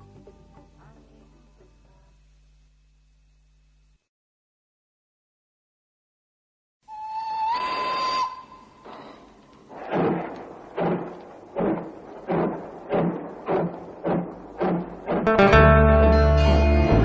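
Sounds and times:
acoustic guitar chords: 13.3s - 17.0s.

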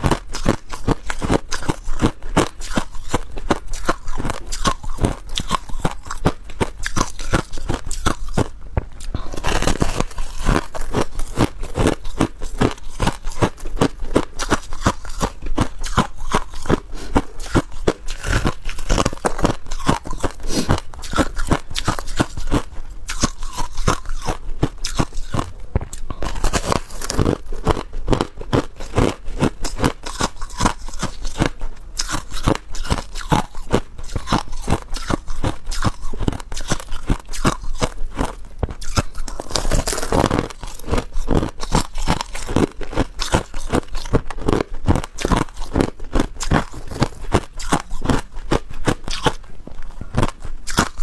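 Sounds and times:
crushed ice being chewed: 0.0s - 51.0s.

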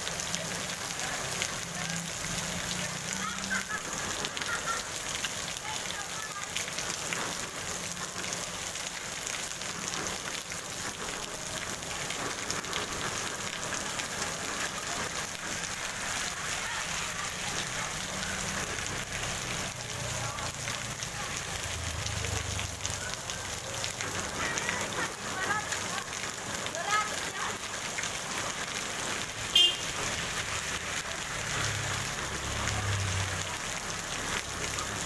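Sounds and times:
heavy rain on wet pavement: 0.0s - 35.0s.

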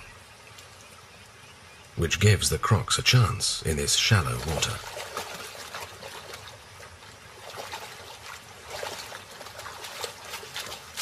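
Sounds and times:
river water splashing: 3.7s - 11.0s.

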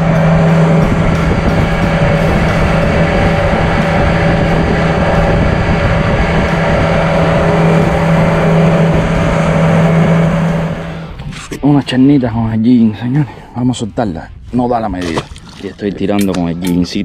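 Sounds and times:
outboard motor humming: 0.0s - 11.6s, 15.0s - 16.3s
wind noise: 0.0s - 17.0s
water rushing: 14.9s - 16.4s.

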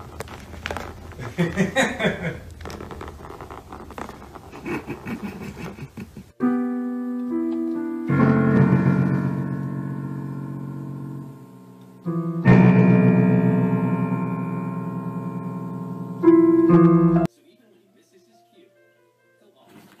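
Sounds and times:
room sound: 0.0s - 20.0s
slow keyboard chords: 6.4s - 17.3s.

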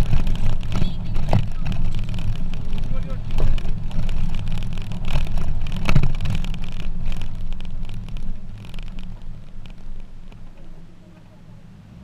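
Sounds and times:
body knocks and rattles: 0.0s - 11.4s
truck engine and road rumble: 0.0s - 12.0s.

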